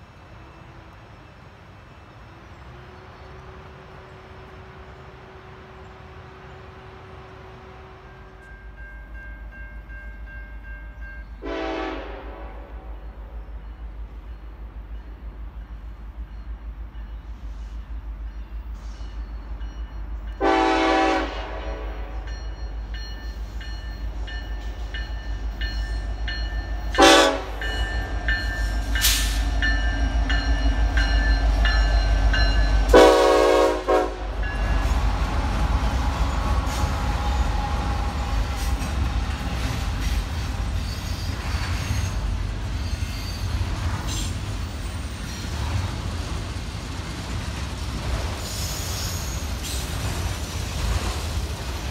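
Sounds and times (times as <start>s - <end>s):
freight train rumbling past: 0.0s - 51.9s
train horn blasts: 2.7s - 8.7s, 11.4s - 13.3s, 20.3s - 22.5s, 26.9s - 28.0s, 32.8s - 34.8s.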